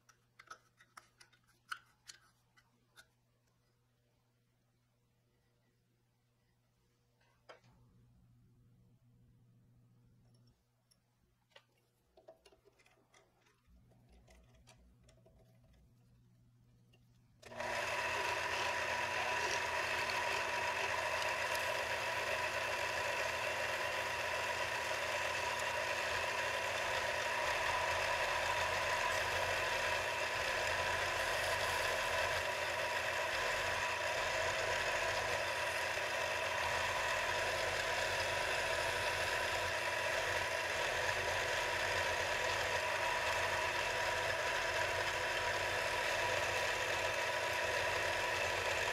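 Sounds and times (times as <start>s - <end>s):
lathe motor whine: 17.4s - 48.9s.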